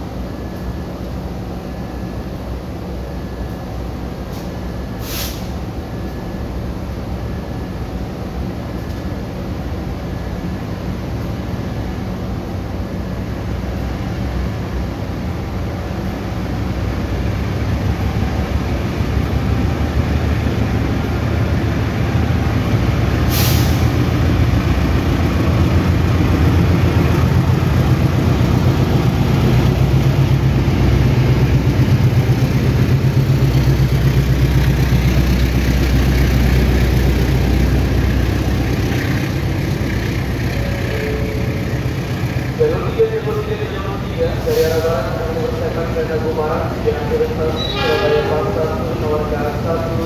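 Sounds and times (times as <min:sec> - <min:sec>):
locomotive engine rumble: 0:00.0 - 0:50.0
short sharp hiss: 0:04.3 - 0:05.6, 0:23.3 - 0:23.9.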